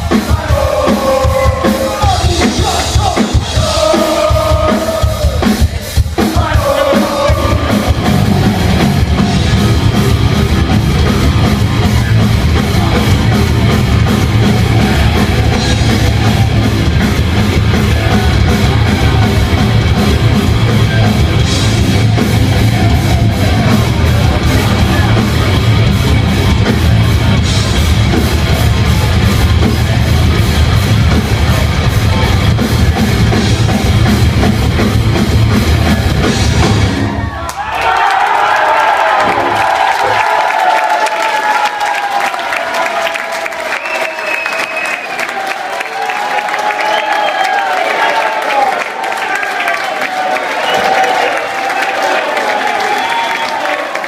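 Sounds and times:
heavy metal band playing live: 0.0 - 37.4.

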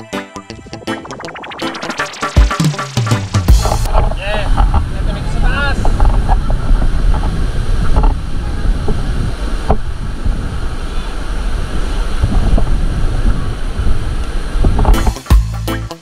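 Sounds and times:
wind buffeting microphone: 3.8 - 15.1.

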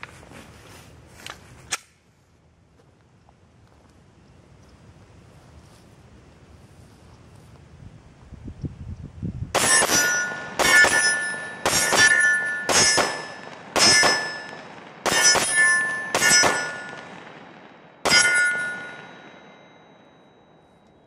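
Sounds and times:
pistol shots: 9.5 - 19.5
steel plate target ringing: 9.6 - 17.2, 17.9 - 20.8.

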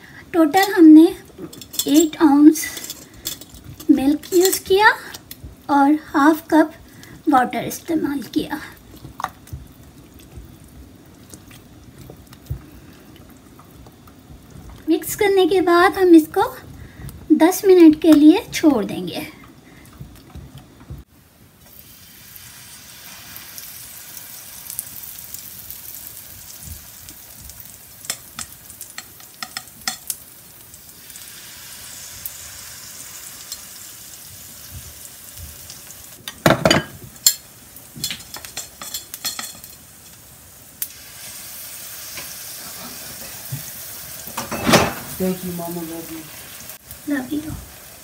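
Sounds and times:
batter sizzling in hot oil: 21.0 - 48.0.

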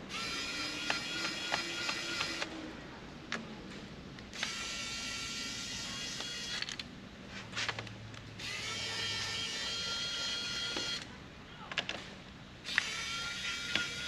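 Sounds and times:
electric screwdriver motor whirring: 0.1 - 2.5, 4.4 - 6.8, 12.7 - 14.0.

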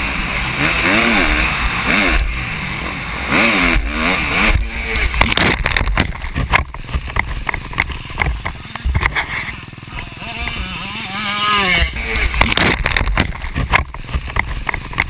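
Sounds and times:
motorbike engine revving: 0.0 - 15.0
camera tumbling into dirt: 4.9 - 9.6, 11.7 - 15.0
wind rushing over camera: 11.7 - 15.0.

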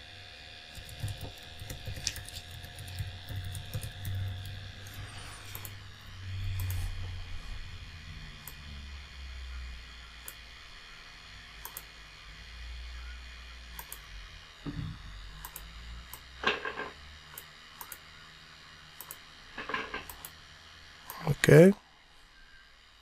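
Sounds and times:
faint low hum: 0.0 - 23.0
computer mouse clicking: 0.7 - 5.8, 6.5 - 6.9, 11.6 - 11.9, 13.8 - 14.0, 15.4 - 16.3, 17.3 - 18.0, 19.0 - 20.4.

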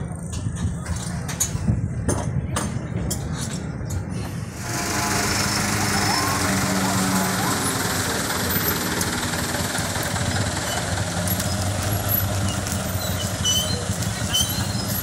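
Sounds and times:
large vehicle engine idling: 4.3 - 15.0.

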